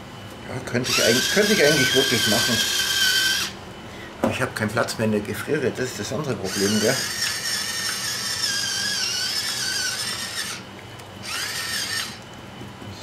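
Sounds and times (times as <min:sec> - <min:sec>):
electric pepper mill grinding: 0:00.9 - 0:03.6, 0:06.4 - 0:12.4.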